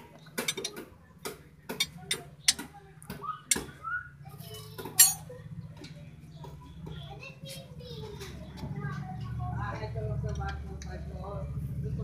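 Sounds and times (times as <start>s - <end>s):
wrench clinking on bolts: 0.4s - 0.8s, 4.6s - 5.3s.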